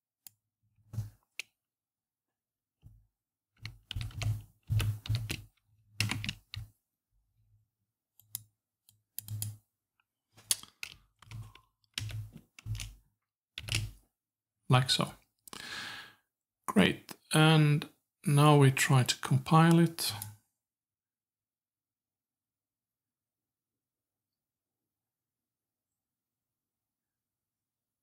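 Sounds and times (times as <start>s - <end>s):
typing on computer keyboard: 3.6s - 6.7s, 10.5s - 13.0s, 13.6s - 14.0s.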